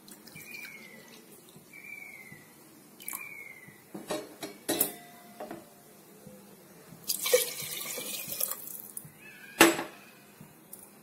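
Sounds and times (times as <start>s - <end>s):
water pouring and splashing: 7.1s - 9.0s.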